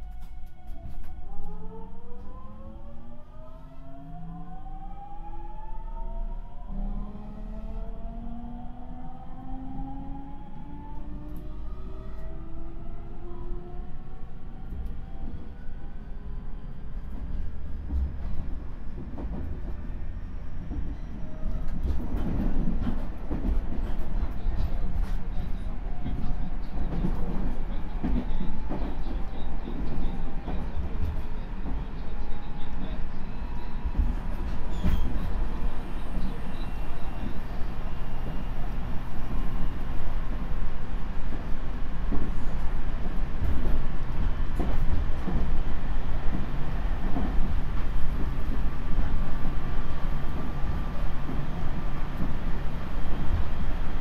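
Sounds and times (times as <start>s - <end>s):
train wheels rumbling on rail: 7.2s - 54.0s
rail joint clicks: 20.6s - 37.6s, 41.3s - 45.6s.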